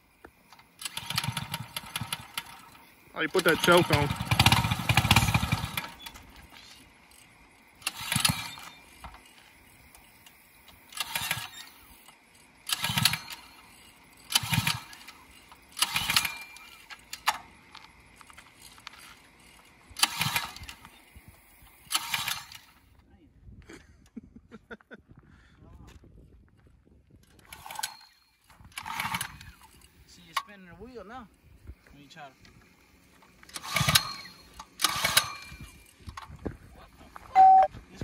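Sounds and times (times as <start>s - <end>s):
small engine pull-start cranking: 0.5s - 17.6s, 18.6s - 21.0s, 21.8s - 22.9s, 27.3s - 30.5s, 33.4s - 36.4s.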